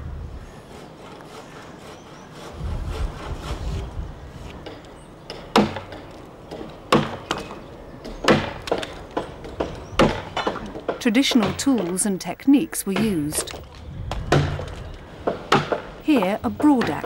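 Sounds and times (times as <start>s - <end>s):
axe chopping timber: 5.3s - 11.9s, 14.1s - 17.0s.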